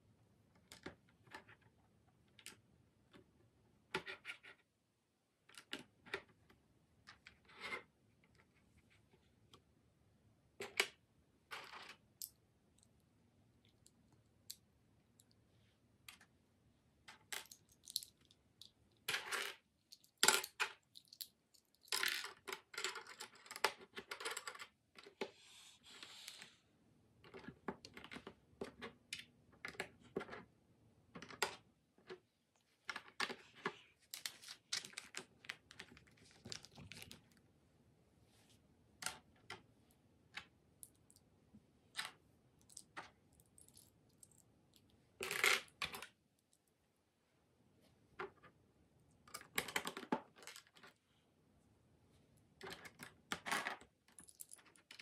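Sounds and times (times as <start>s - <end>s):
plastic bricks clicking and clattering: 17.1s - 25.2s.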